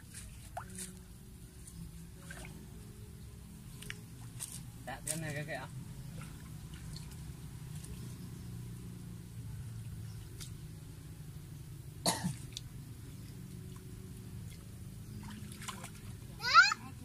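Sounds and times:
steady low hum: 0.0s - 17.0s
person coughing: 12.1s - 12.4s.

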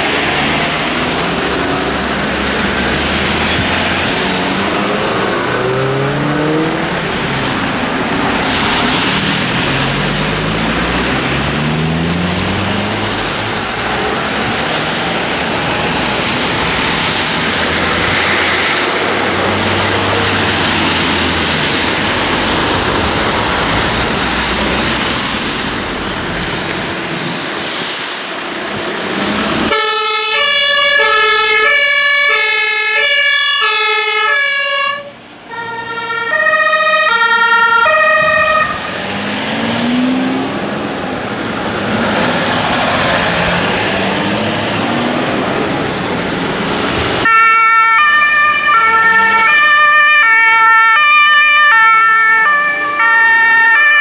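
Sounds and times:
vehicles driving on wet street: 0.0s - 54.0s
two-tone emergency siren: 29.6s - 39.0s, 47.2s - 54.0s.

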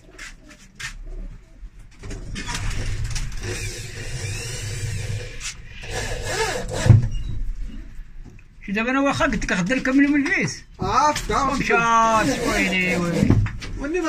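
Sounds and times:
electric drill motor whine: 3.4s - 7.0s.

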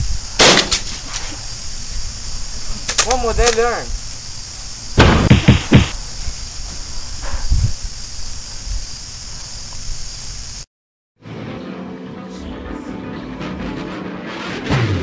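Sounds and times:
steady hiss: 0.0s - 10.7s
loud thumps: 5.0s - 6.0s.

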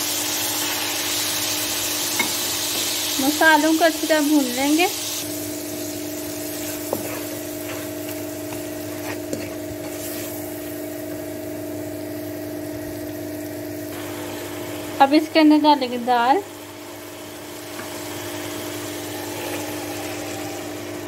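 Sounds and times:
spices sizzling in oil: 0.0s - 21.0s
spatula scraping a pan: 6.5s - 10.4s.

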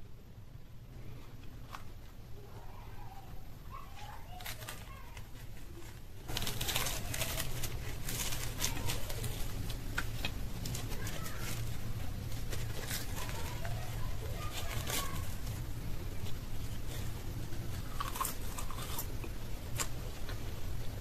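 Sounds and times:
fried pastry crust crackling: 1.0s - 21.0s.

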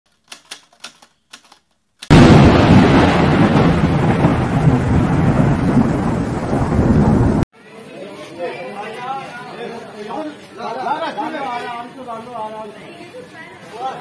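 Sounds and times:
loud boom with thunder-like rumble: 2.1s - 7.4s.

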